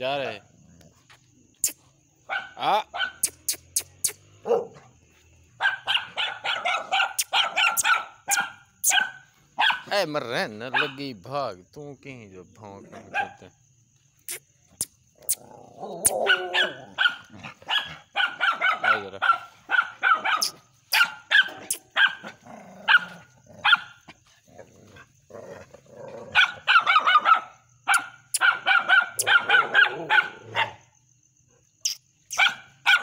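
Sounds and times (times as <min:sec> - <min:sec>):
dog barking: 0:02.2 - 0:03.5, 0:04.4 - 0:09.9, 0:10.7 - 0:11.0, 0:13.0 - 0:13.5, 0:16.0 - 0:24.1, 0:26.2 - 0:31.0, 0:32.3 - 0:33.0.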